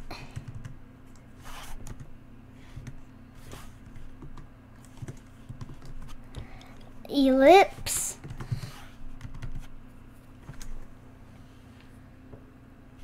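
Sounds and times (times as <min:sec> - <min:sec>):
typing on keyboard: 0:00.3 - 0:01.2, 0:01.8 - 0:02.1, 0:03.8 - 0:06.8, 0:08.2 - 0:09.7.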